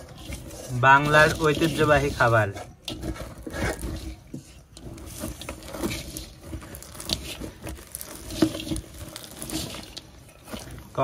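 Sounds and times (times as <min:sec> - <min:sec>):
spoon scraping a steel bowl: 0:00.0 - 0:10.9
spoon stirring crunchy grains: 0:00.0 - 0:11.0.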